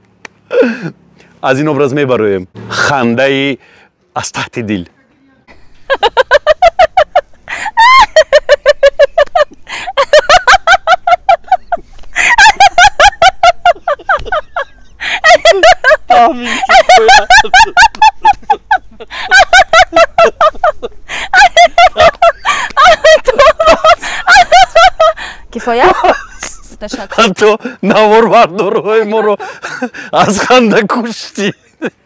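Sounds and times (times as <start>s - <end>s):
woman laughing hard: 5.9s - 30.1s.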